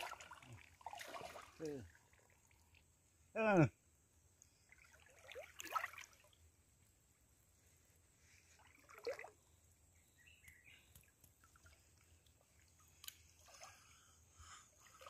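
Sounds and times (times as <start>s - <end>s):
hands splashing in water: 0.0s - 1.7s, 4.8s - 6.3s.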